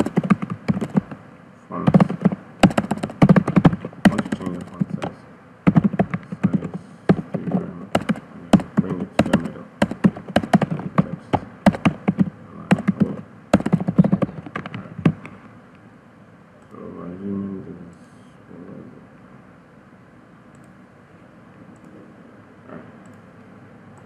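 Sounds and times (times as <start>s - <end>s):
computer keyboard key clicks: 0.0s - 1.2s, 1.9s - 5.1s, 5.7s - 15.3s.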